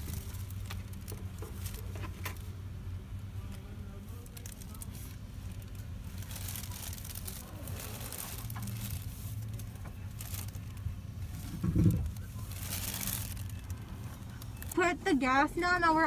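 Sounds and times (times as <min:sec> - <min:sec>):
low steady hum: 0:00.0 - 0:16.0
rustling: 0:03.5 - 0:14.9.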